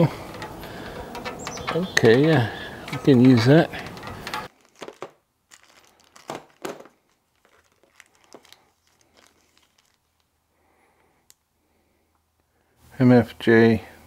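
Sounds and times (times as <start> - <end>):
plastic zip bag crinkling: 3.8 - 10.4.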